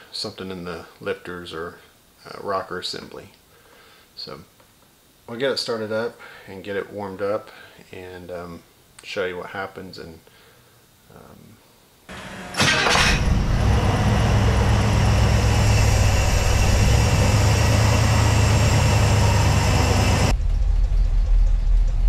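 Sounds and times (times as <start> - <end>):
engine cranking and starting: 12.1 - 22.0
engine idling: 12.1 - 22.0.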